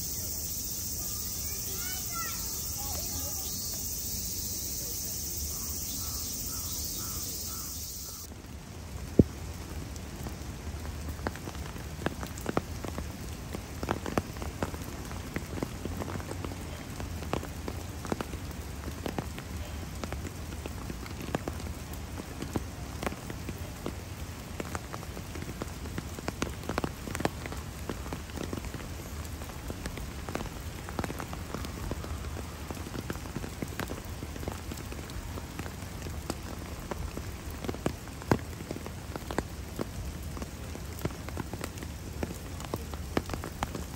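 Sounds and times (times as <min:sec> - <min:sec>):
rain falling: 0:00.0 - 0:43.9
raindrops tapping close by: 0:00.0 - 0:43.9.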